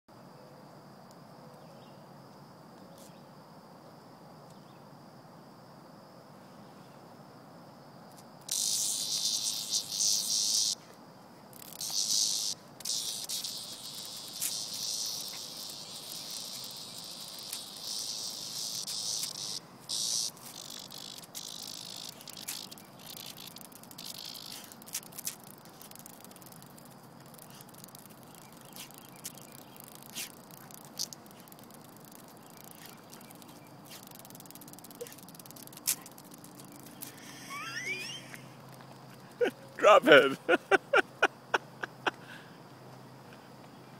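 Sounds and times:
faint insect drone: 0:00.1 - 0:43.9
cicada distress buzz: 0:08.1 - 0:42.7.

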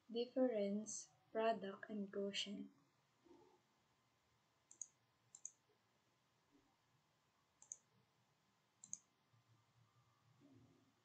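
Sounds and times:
computer mouse clicks: 0:04.7 - 0:05.6, 0:07.6 - 0:07.9, 0:08.8 - 0:09.1.

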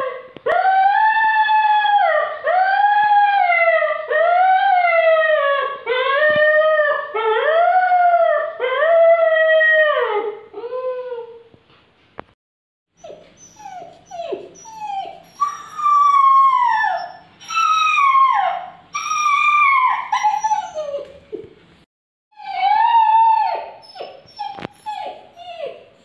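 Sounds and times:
puppy howling: 0:13.0 - 0:21.2, 0:22.4 - 0:25.8
puppy whining yelps: 0:13.0 - 0:21.5, 0:22.4 - 0:25.9.

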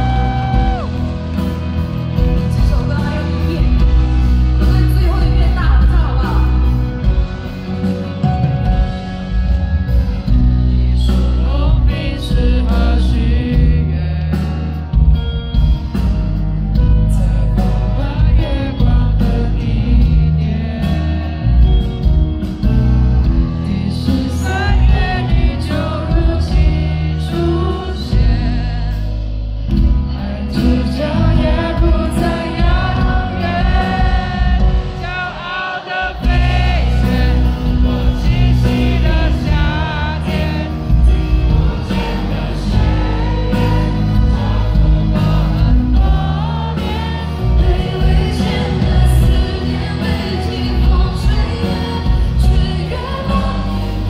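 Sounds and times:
live pop band over loudspeakers: 0:00.0 - 0:54.0
woman singing: 0:10.7 - 0:14.6, 0:16.8 - 0:21.9, 0:23.6 - 0:29.2, 0:30.1 - 0:54.0.

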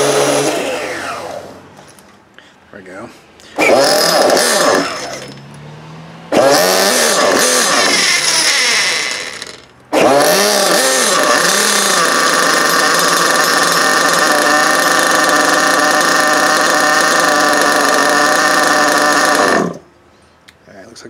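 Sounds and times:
model glow engine running: 0:11.3 - 0:19.8.

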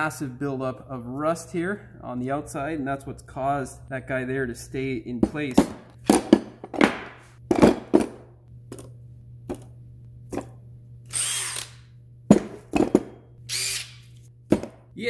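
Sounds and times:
power tool with wire brush: 0:11.1 - 0:11.8, 0:13.5 - 0:14.2.

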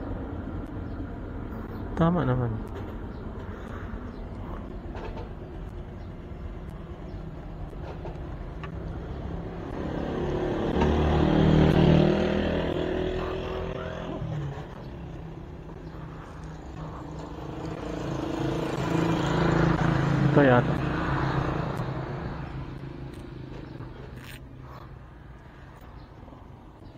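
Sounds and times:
wind and road noise: 0:00.0 - 0:26.9
scooter engine running: 0:08.8 - 0:23.5.

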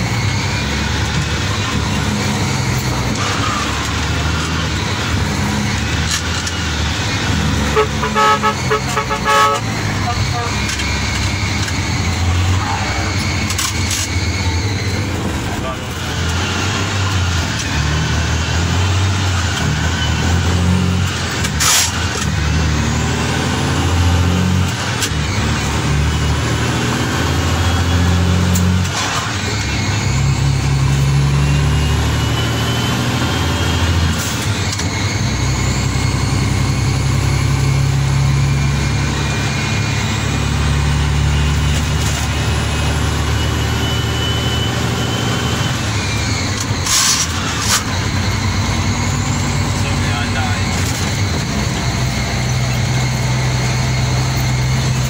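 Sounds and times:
truck diesel engine under load: 0:00.0 - 0:55.0
faint high whistle: 0:43.1 - 0:47.2.

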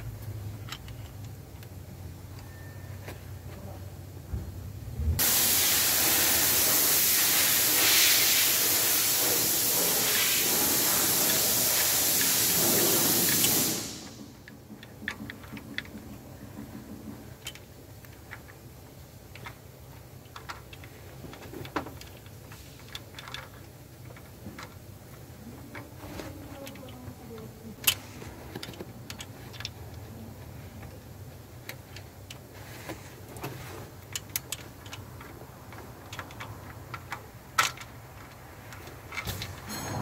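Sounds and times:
metal chain clicking and clinking: 0:39.1 - 0:40.0.

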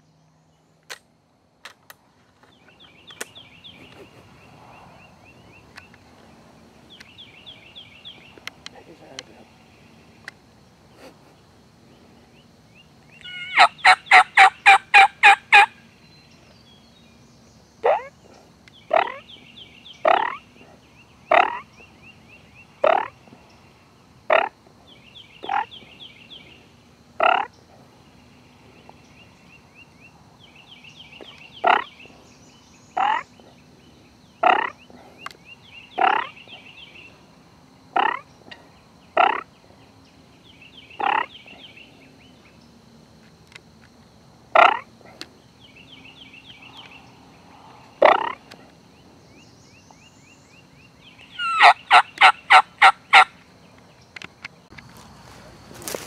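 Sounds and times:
turkey yelps: 0:13.2 - 0:15.7, 0:17.8 - 0:18.1, 0:51.4 - 0:53.3
short rising turkey calls: 0:13.2 - 0:15.8, 0:51.4 - 0:53.4.

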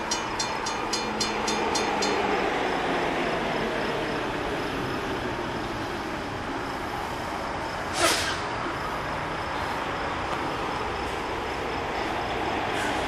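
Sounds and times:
crossing signal ding: 0:00.0 - 0:02.4
vehicle rumble: 0:00.0 - 0:13.0
air brake hiss: 0:07.9 - 0:08.5, 0:12.8 - 0:13.0.

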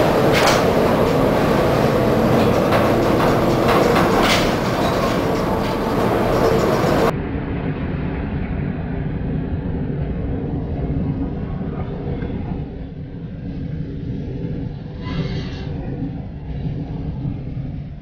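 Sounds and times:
rumbling and rattling: 0:00.0 - 0:07.1
sharp knocks: 0:00.0 - 0:07.1
storm wind and sea: 0:00.0 - 0:18.0.

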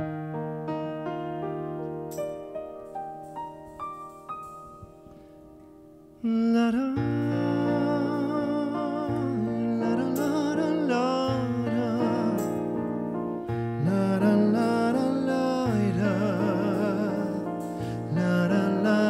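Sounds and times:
hummed vocal melody: 0:06.2 - 0:13.1, 0:13.8 - 0:19.0.

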